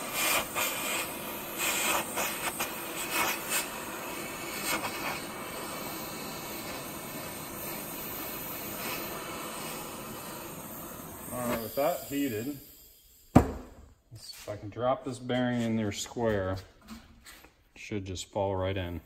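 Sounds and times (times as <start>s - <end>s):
propane torch hissing: 0.0s - 14.6s.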